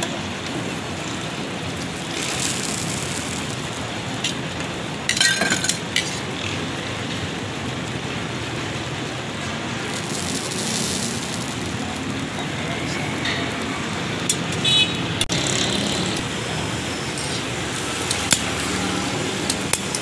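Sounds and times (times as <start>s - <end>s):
street traffic: 0.0s - 20.0s
egg and oil sizzling on griddle: 0.4s - 6.6s, 7.2s - 14.8s, 16.2s - 20.0s
metal tongs clattering: 5.1s - 6.1s.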